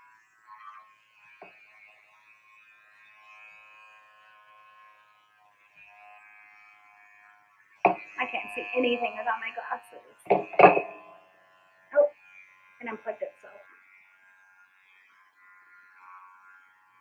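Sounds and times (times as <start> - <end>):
electric hair clippers buzzing: 0.0 - 17.0
soft knocks: 7.9 - 8.1, 10.3 - 11.1.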